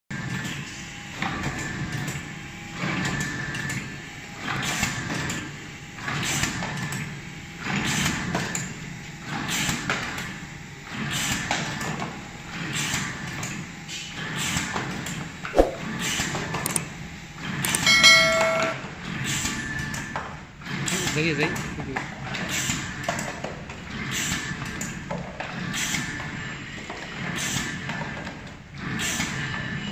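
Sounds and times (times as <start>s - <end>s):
machine swish with clicks: 15.6s - 15.9s.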